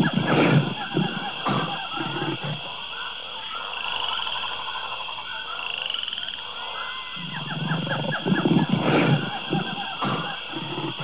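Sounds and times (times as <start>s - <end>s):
rapid trilling animal calls: 0.0s - 3.7s, 6.6s - 11.0s.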